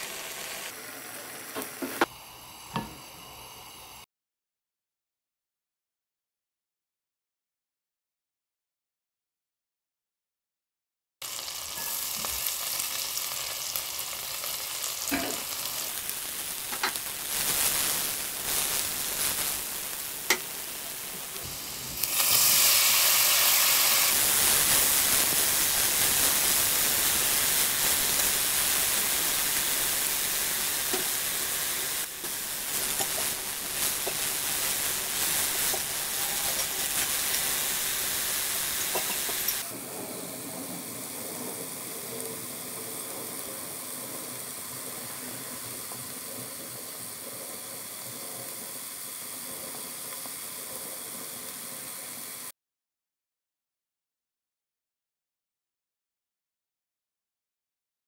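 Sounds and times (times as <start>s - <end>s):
butter sizzling in a pot: 0.0s - 4.0s, 11.2s - 52.5s.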